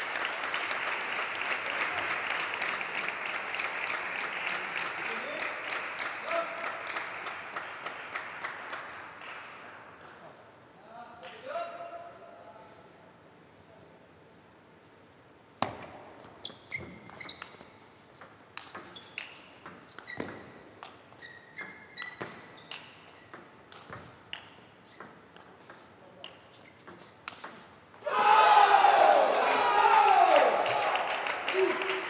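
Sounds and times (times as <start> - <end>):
ping pong ball hitting rackets: 17.1 - 21.0, 21.6 - 28.1
shouting and applause: 28.0 - 32.0.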